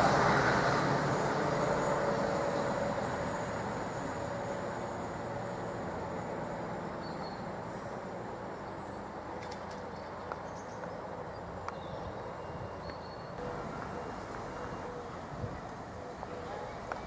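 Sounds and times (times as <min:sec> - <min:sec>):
outdoor rumble and hiss: 0:00.0 - 0:17.0.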